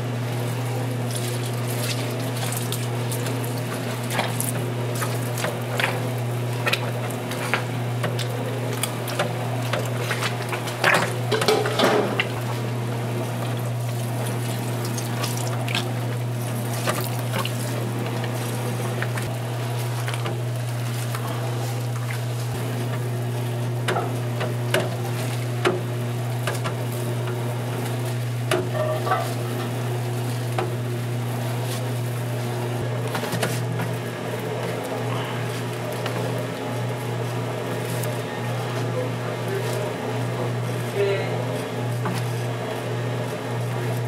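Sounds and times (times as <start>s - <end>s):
steady low hum: 0.0s - 44.0s
watery liquid sound: 13.4s - 22.6s.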